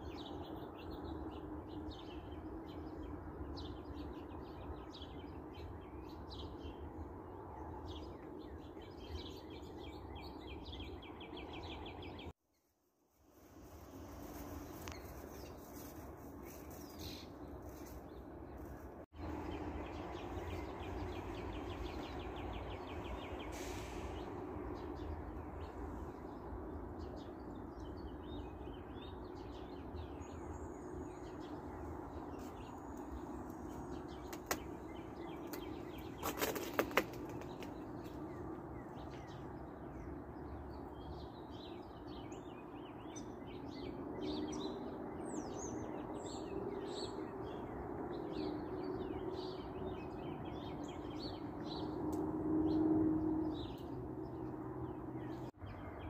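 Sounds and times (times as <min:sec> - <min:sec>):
small birds chirping: 0:14.1 - 0:56.0.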